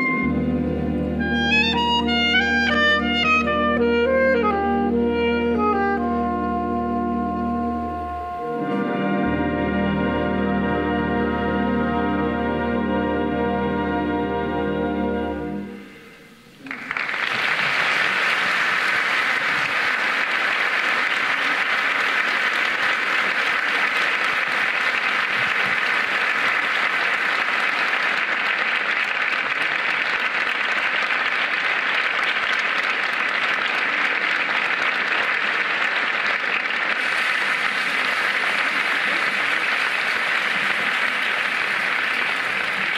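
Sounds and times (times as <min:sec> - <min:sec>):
audience applauding: 0:16.6 - 0:42.9.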